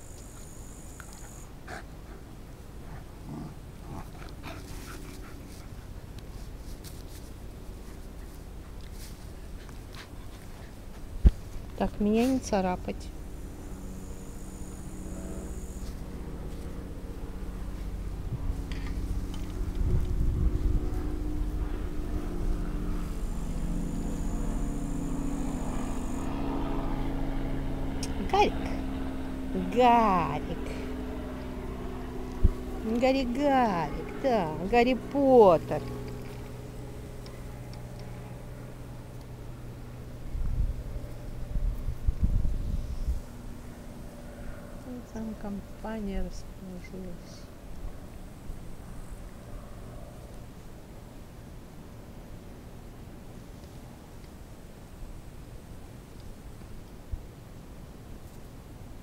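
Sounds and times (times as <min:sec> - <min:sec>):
faint high whine: 0:00.0 - 0:01.6, 0:11.5 - 0:51.4
motor hum: 0:00.0 - 0:55.4.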